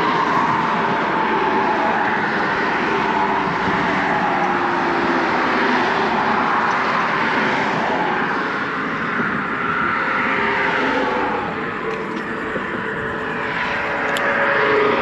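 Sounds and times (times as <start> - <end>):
road traffic rushing past: 0.0 - 15.0.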